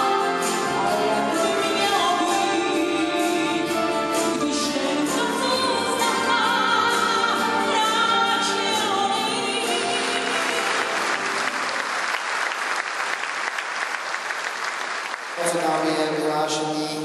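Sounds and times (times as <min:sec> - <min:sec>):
woman singing a ballad: 0:00.0 - 0:11.0
audience applause: 0:09.8 - 0:16.3.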